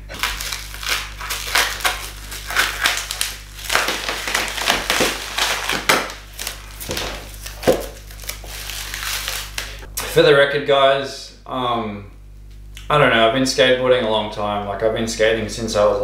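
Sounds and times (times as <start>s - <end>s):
scissors cutting plastic: 0.1s - 9.8s
plastic wrap crinkling: 0.1s - 9.9s.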